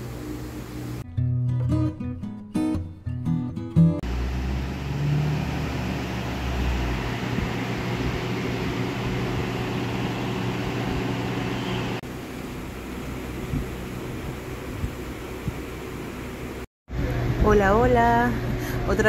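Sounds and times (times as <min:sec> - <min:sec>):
guitar music: 0:01.0 - 0:04.0
steady rushing noise: 0:04.0 - 0:12.0
low hum: 0:04.0 - 0:18.9.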